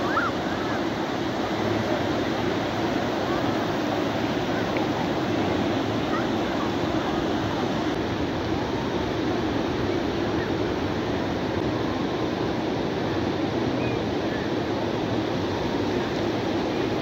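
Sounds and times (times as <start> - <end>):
surf washing: 0.0 - 17.0
crowd chatter: 1.5 - 7.9.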